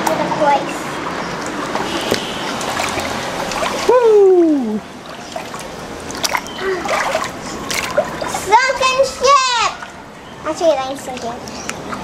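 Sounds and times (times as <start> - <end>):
water dripping: 0.0 - 12.0
water swishing and splashing: 0.0 - 12.0
person calling whoo: 3.8 - 4.8.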